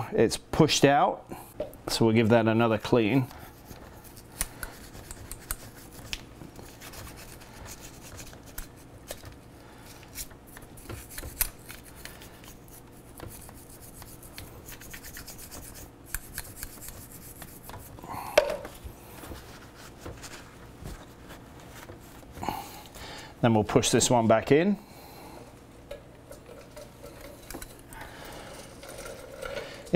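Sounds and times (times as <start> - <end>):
cloth rubbing on metal: 12.6 - 18.0.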